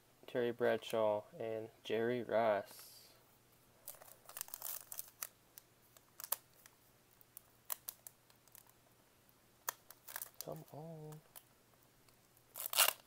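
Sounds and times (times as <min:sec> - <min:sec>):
wrapper crinkling: 0:03.8 - 0:06.7, 0:07.4 - 0:08.8, 0:09.6 - 0:11.5, 0:12.5 - 0:13.0.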